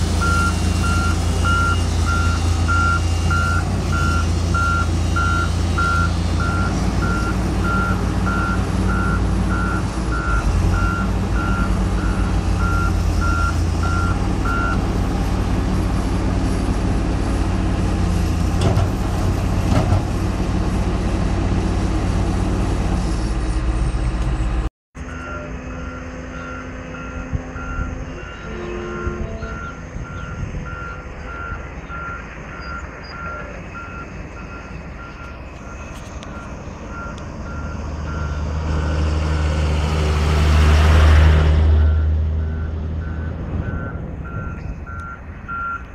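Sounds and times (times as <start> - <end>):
heavy diesel engine running: 0.0 - 45.9
reversing alarm beeping: 0.2 - 14.8, 25.0 - 38.5, 41.8 - 45.9.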